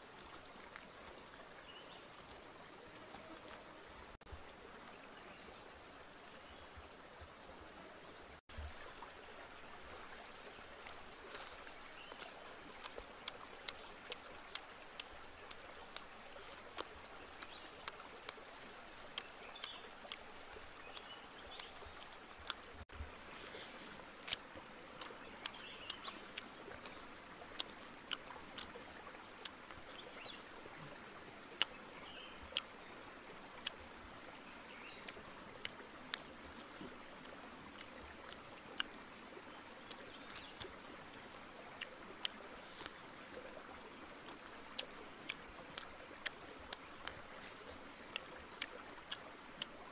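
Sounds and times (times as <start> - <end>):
wet chewing and lip smacks: 9.8 - 22.8, 23.4 - 31.8, 33.6 - 33.8, 35.0 - 49.9.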